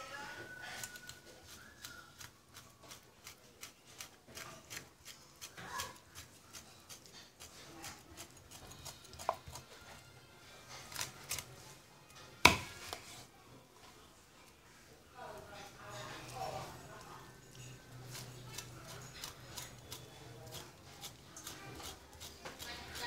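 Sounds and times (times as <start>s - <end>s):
cleaver chopping on wooden board: 12.4s - 12.7s.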